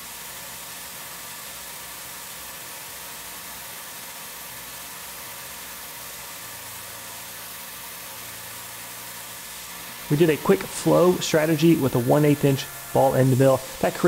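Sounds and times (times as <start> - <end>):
milling machine cutting hiss: 0.0 - 14.0
low hum: 10.0 - 14.0
second low hum: 10.0 - 14.0.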